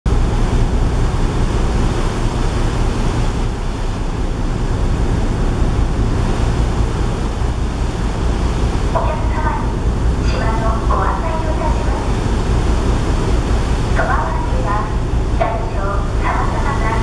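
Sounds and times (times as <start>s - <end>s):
low rumble: 0.1s - 17.0s
rush of wake water: 0.1s - 17.0s.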